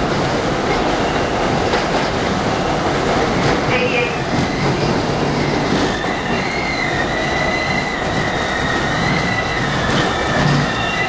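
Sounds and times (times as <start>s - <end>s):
wheels rumbling on rail: 0.0s - 11.0s
high wheel squeal: 3.7s - 11.0s.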